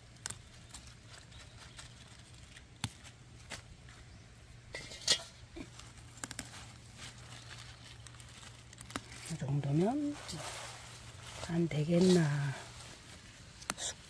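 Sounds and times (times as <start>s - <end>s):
lettuce leaves snapping: 0.0s - 4.0s, 5.6s - 14.0s
leaves rustling in metal colander: 4.8s - 13.6s.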